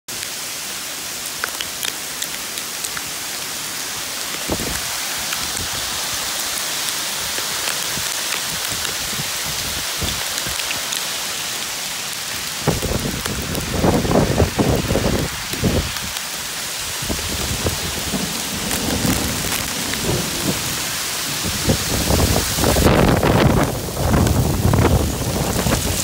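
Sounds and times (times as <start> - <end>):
hail falling on forest floor: 0.1 - 26.0.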